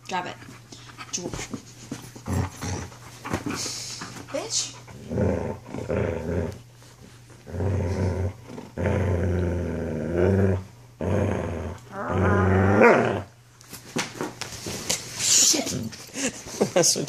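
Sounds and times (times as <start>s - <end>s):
dog play-growling: 0.4s - 13.4s.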